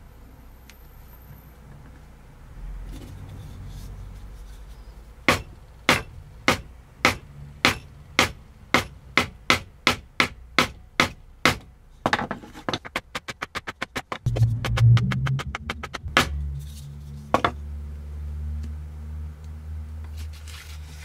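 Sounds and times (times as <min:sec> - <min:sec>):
mallet striking metal punch: 0:14.3 - 0:16.5.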